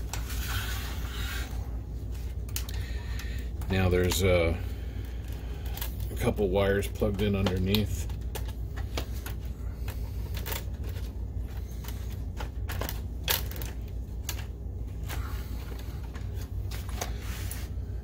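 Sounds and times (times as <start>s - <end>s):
steady low hum: 0.0s - 18.0s
clicks and rattles of connectors: 2.4s - 4.3s, 5.1s - 17.2s.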